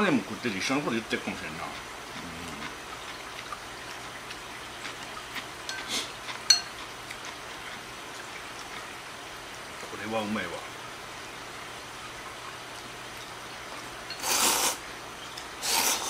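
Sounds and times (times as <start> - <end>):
chopsticks stirring wet noodles: 0.9 - 8.9, 14.1 - 14.8, 15.6 - 16.0
chopsticks clinking against bowl: 5.6 - 6.9.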